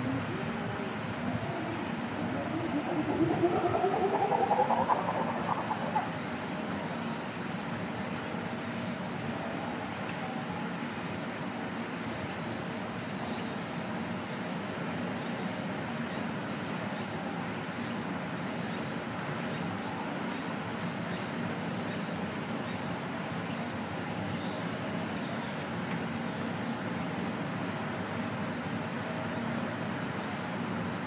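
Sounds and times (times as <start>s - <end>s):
chimpanzee call rising in pitch: 0.0s - 6.3s
steady background hum: 0.0s - 31.0s.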